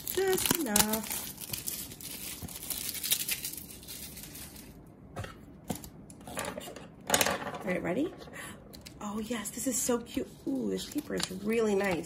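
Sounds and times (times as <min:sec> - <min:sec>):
packaging rustling and tearing: 0:00.0 - 0:04.9.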